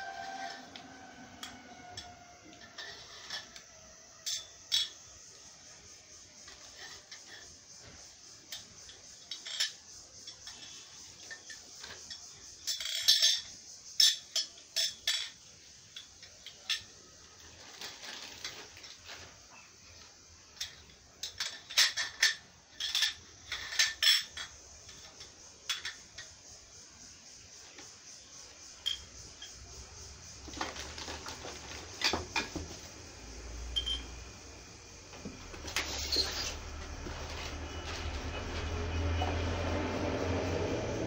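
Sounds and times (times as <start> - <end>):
steel tubes clinking: 0.0 - 5.1, 8.5 - 19.2, 20.5 - 26.4, 28.8 - 32.6, 35.6 - 38.7
plastic wrapping rustling: 17.4 - 19.4, 30.4 - 32.8, 35.4 - 38.6.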